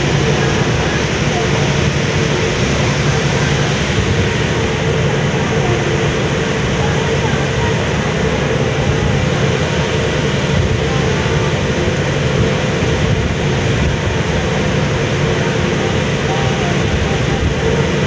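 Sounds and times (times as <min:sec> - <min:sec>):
ferry engines droning: 0:00.0 - 0:18.0
water wash of churning wake: 0:00.0 - 0:18.0.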